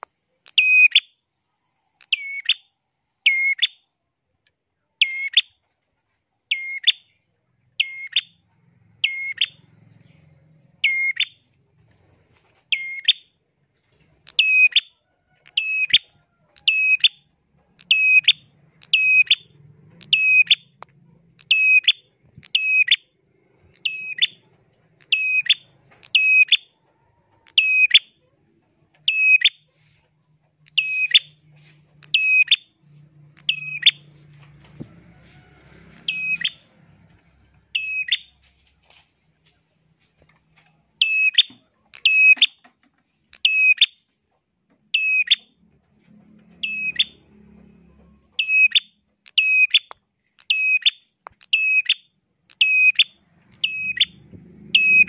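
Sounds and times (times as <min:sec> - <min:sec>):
caged bird chirping shrilly: 0:00.4 - 0:01.2, 0:02.0 - 0:03.9, 0:05.0 - 0:05.6, 0:06.5 - 0:11.5, 0:12.7 - 0:13.4, 0:14.2 - 0:26.8, 0:27.4 - 0:28.3, 0:29.0 - 0:29.9, 0:30.6 - 0:34.2, 0:35.7 - 0:37.0, 0:37.7 - 0:38.5, 0:41.0 - 0:42.7, 0:43.3 - 0:44.0, 0:44.9 - 0:45.6, 0:46.5 - 0:47.6, 0:48.3 - 0:55.0.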